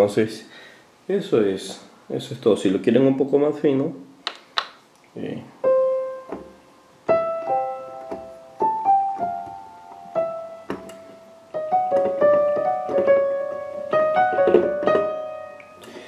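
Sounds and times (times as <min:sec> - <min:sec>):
keyboard piano melody: 0:05.6 - 0:16.0.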